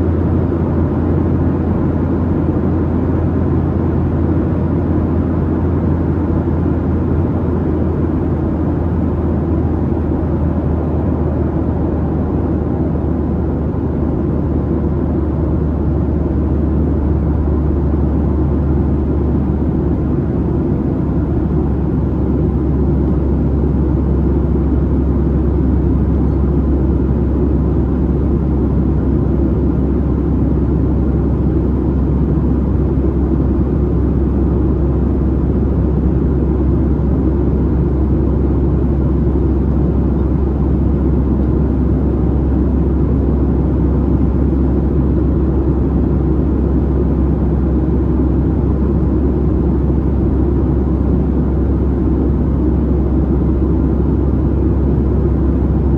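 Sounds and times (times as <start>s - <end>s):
jet engine low rumble: 0.0s - 55.9s.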